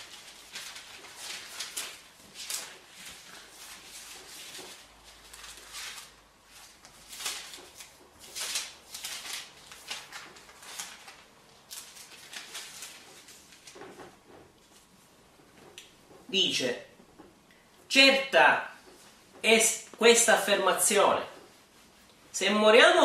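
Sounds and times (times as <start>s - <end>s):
paper pages rustling: 0.0s - 16.3s.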